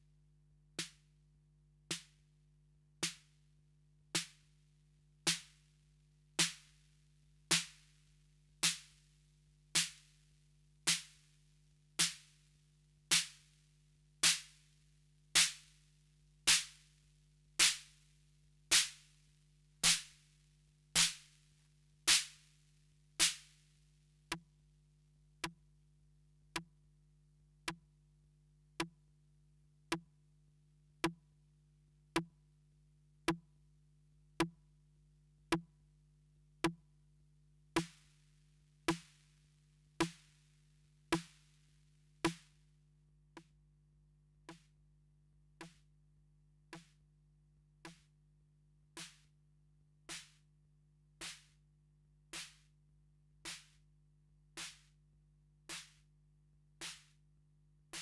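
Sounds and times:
drum machine snare hits: 21.0 - 21.2.

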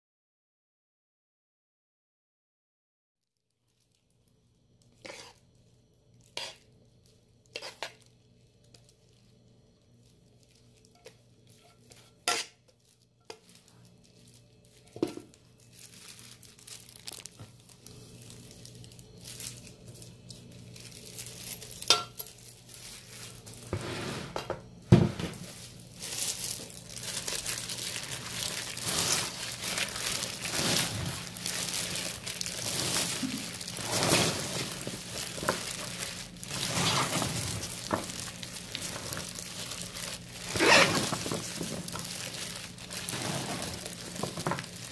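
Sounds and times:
wet rustle of tossed onions: 4.8 - 23.7, 25.4 - 44.9
spoon scraping steel bowl: 5.0 - 5.4, 6.4 - 6.6, 7.6 - 8.0, 11.0 - 12.6.

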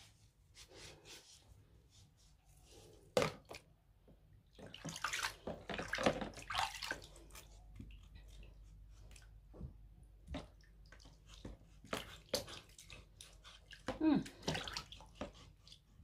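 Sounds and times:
water splashing in a plastic basin: 3.1 - 3.8, 4.4 - 16.0.

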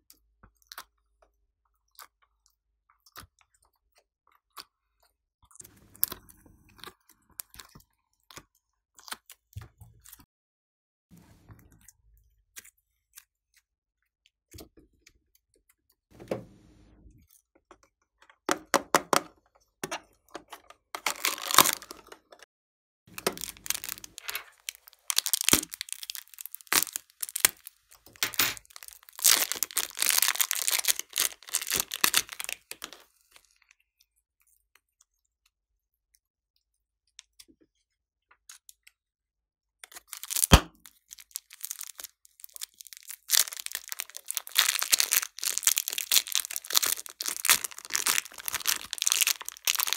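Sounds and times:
scissors cutting plastic: 19.9 - 22.4, 23.1 - 33.0, 39.9 - 49.9
clay squishing and tearing: 20.4 - 22.4, 23.1 - 35.2, 39.8 - 49.9
plastic bags crinkling: 21.0 - 22.4, 23.1 - 33.1, 40.0 - 49.9.

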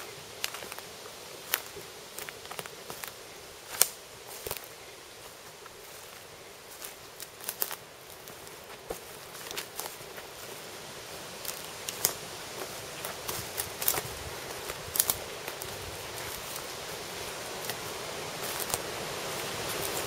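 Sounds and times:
footsteps on dry leaves and twigs: 0.0 - 20.0
steady rushing noise: 9.9 - 20.0.

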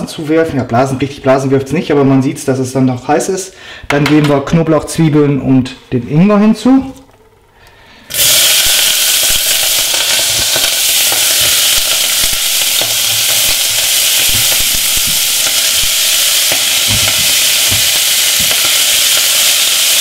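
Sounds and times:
food sizzling in hot oil: 8.1 - 20.0.

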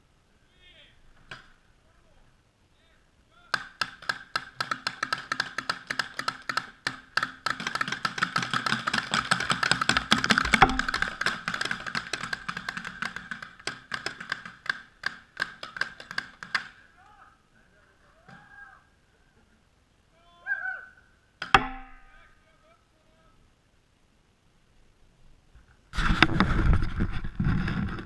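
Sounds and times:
sharp clicks and knocks: 3.5 - 16.8.

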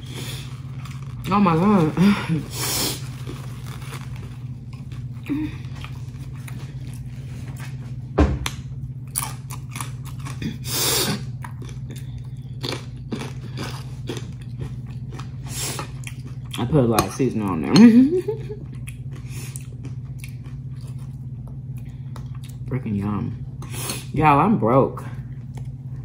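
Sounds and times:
person crunching chips: 0.0 - 7.9, 9.0 - 16.8
low hum: 0.0 - 26.0.

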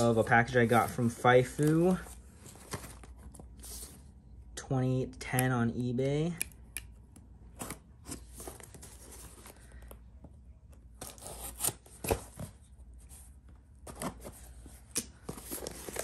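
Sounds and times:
tape and cardboard tearing: 11.0 - 12.2.

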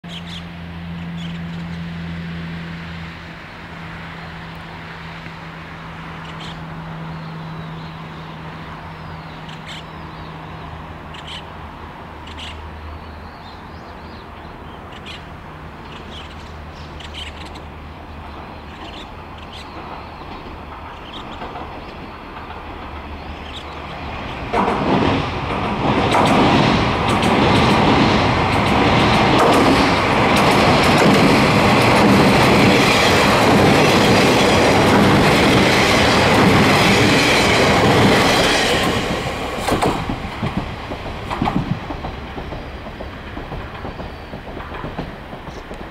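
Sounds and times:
diesel engine drone: 0.0 - 19.7
train rumbling over bridge: 0.0 - 45.9
wheels clacking on rail joints: 14.2 - 45.9.

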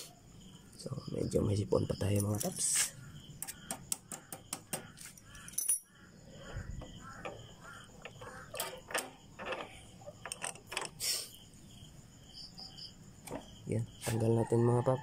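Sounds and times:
faint insect chirring: 0.0 - 15.0
metallic clicks of gear linkage: 8.0 - 11.0.

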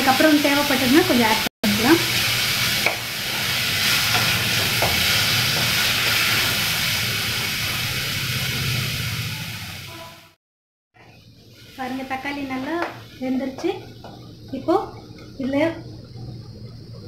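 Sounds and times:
vegetables sizzling in hot oil: 0.0 - 10.4, 11.0 - 16.0
low steady hum: 11.0 - 17.0.

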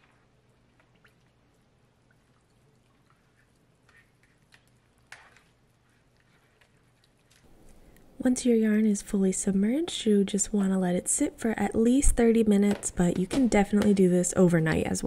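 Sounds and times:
water sloshing and dripping: 0.0 - 8.1.

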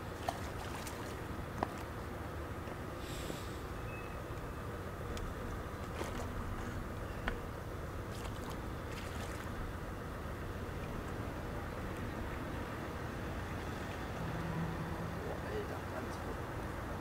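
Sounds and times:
low background rumble: 0.0 - 15.7.

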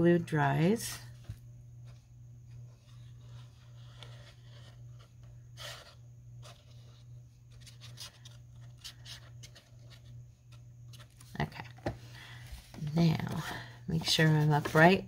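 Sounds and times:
paper being handled: 2.6 - 11.3, 13.9 - 15.0.

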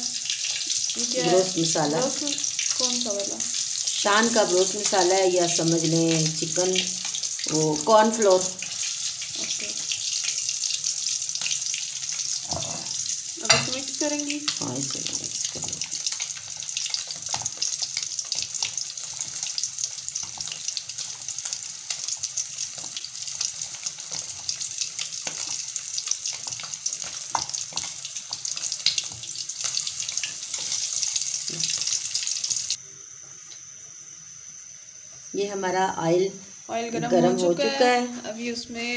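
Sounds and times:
faint high hum: 32.8 - 38.9.

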